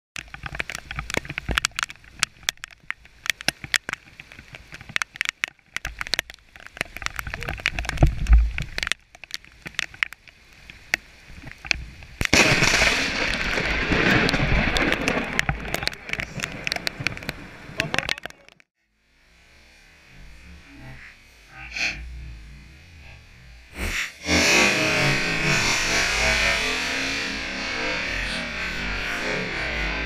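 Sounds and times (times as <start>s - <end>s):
crackles and clicks on microphone: 0.1s - 18.7s, 20.6s - 30.0s
loud thunderclap: 12.3s - 17.9s.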